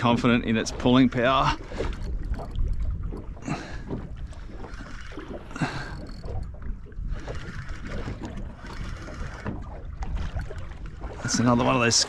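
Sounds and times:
low wind rumble: 0.0s - 12.0s
water slapping against boat hull: 0.0s - 12.0s.

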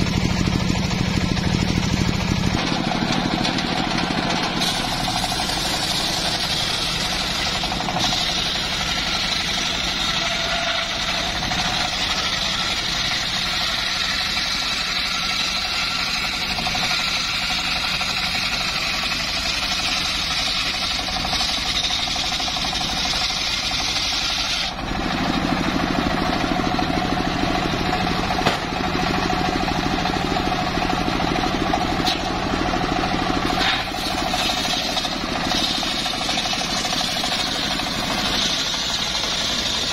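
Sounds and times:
engine drone: 0.0s - 39.9s
saw blade ripping through logs: 2.5s - 25.6s, 31.9s - 32.5s, 33.4s - 39.9s.

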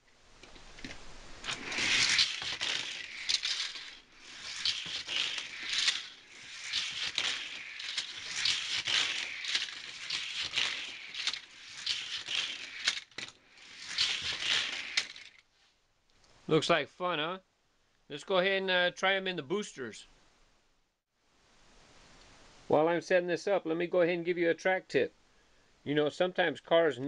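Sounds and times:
toy cars clicking on track joints: 0.8s - 15.4s
toy trains clattering on track: 1.4s - 15.4s.

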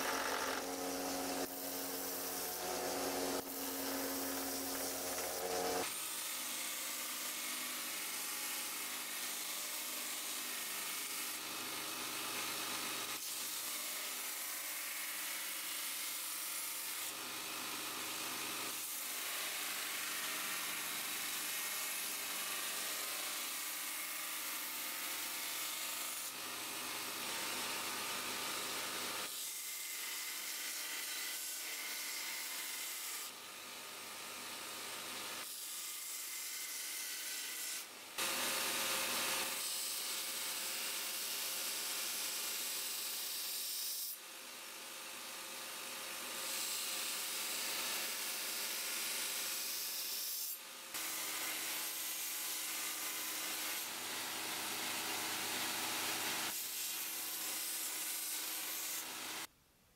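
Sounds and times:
belt grinder grinding steel blade: 0.0s - 11.4s, 48.8s - 59.5s.

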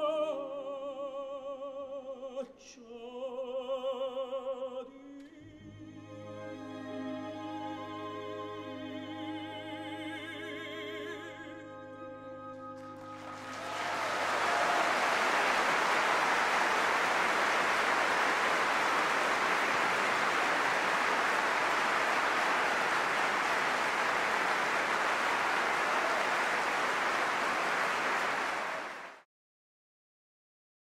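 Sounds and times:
audience applauding: 13.0s - 29.2s.

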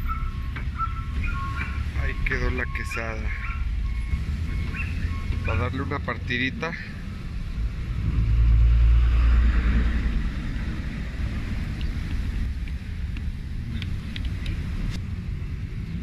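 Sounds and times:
low traffic rumble: 0.0s - 16.0s
vehicle passing close: 3.4s - 16.0s.

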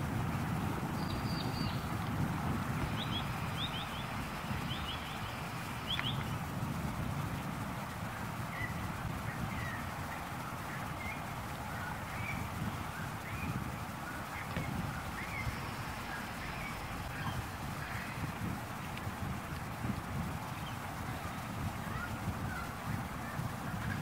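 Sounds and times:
low wind rumble: 0.0s - 24.0s
soft low bird calls: 0.8s - 6.5s, 8.1s - 19.3s, 20.4s - 24.0s
high bird chirps: 1.0s - 1.9s, 2.8s - 6.4s, 12.1s - 18.3s.

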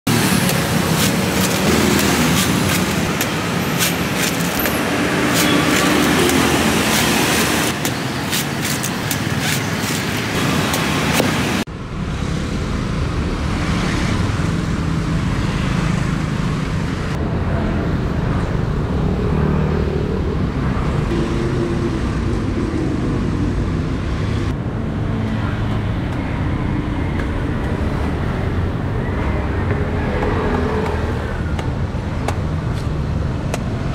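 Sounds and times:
road traffic rumble: 0.0s - 33.9s
machete chopping coconuts: 0.4s - 11.4s.

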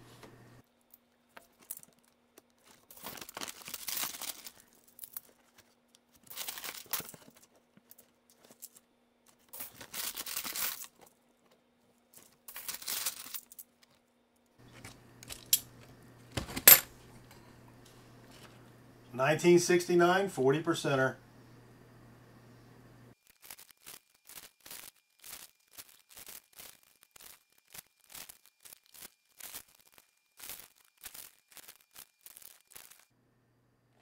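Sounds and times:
plastic bag rustling: 1.5s - 7.7s, 9.4s - 11.5s, 23.2s - 33.1s
coins clinking: 9.6s - 11.0s, 12.2s - 13.7s, 16.5s - 16.9s.

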